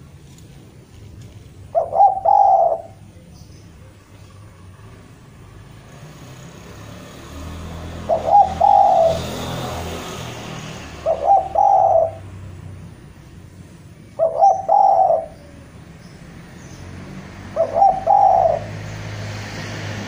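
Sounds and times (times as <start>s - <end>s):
dove cooing: 1.6s - 3.1s, 7.9s - 9.6s, 10.8s - 12.4s, 14.0s - 15.8s, 17.4s - 18.9s.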